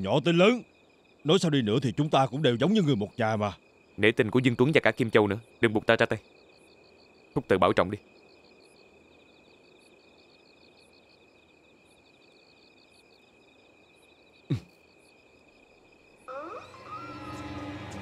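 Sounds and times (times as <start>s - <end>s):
crickets chirping: 0.0s - 18.0s
music: 16.4s - 18.0s.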